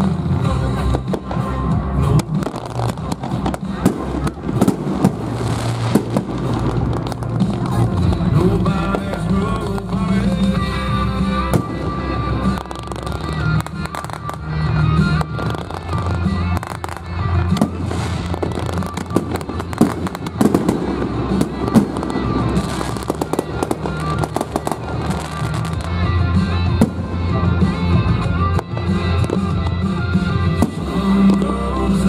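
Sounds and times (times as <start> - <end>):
fireworks popping and crackling: 0.0 - 32.0
music playing: 0.0 - 32.0.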